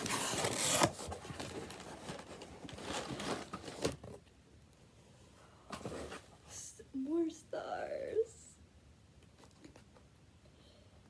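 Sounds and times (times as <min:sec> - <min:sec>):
cardboard box rustling and scraping: 0:00.0 - 0:04.2.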